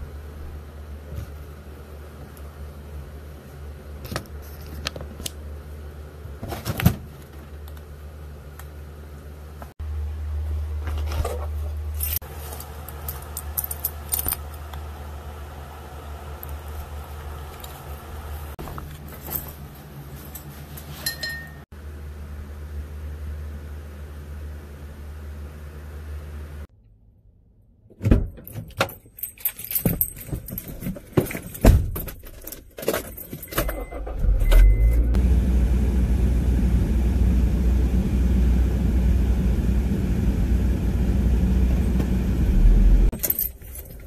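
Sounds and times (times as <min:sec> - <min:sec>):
metal belt buckle clinking: 0:28.7 - 0:31.6
low hum: 0:33.8 - 0:43.2.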